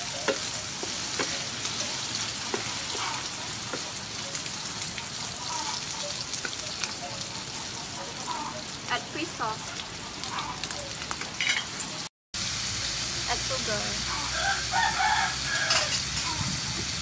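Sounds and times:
food sizzling in oil: 0.0s - 17.0s
wooden spatula knocking on pan: 0.2s - 1.4s, 2.5s - 3.1s.

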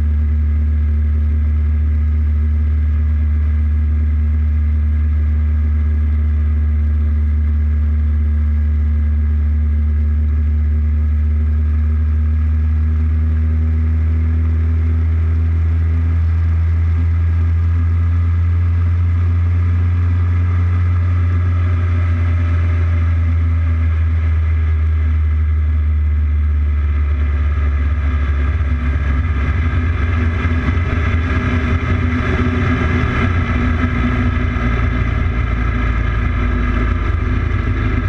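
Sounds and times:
motorcycle engine cruising: 17.6s - 38.0s
wind rushing over microphone: 28.7s - 38.0s.

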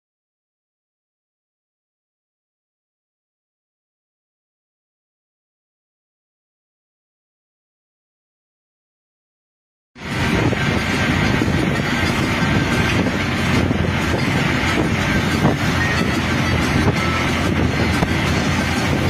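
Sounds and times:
road vehicle rumble: 10.0s - 19.0s.

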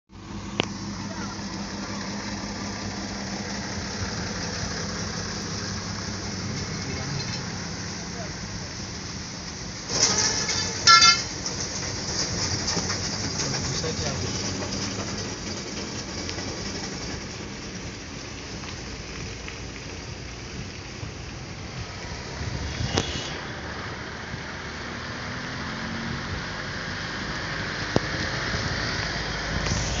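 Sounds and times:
vehicle engine humming: 0.1s - 30.0s
steady hiss: 17.8s - 24.8s, 29.0s - 30.0s.

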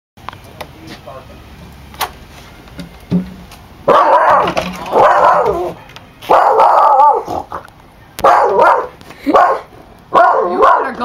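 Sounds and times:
dog barking: 3.9s - 7.4s, 8.2s - 11.0s.

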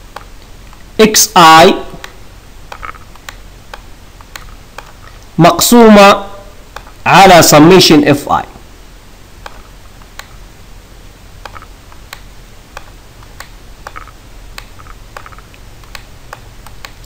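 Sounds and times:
steady low hum: 0.0s - 17.0s
stylus tapping on pen tablet: 11.4s - 17.0s.

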